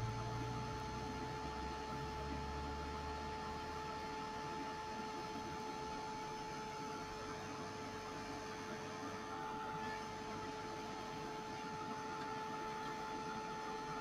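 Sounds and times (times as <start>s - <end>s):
heat tool fan motor humming: 0.0s - 14.0s.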